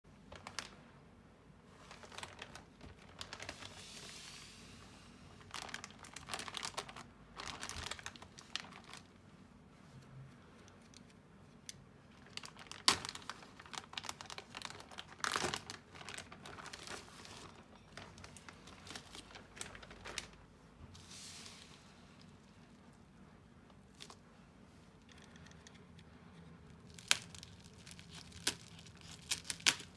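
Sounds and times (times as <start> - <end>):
plastic mailer bag crinkling: 0.3 - 0.8, 1.8 - 4.1, 5.4 - 9.1, 12.1 - 20.5, 26.8 - 29.9.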